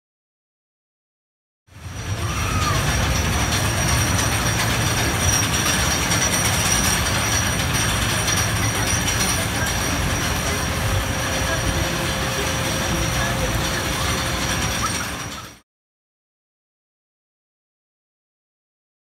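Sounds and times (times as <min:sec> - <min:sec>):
roller coaster on track: 0:01.7 - 0:15.6.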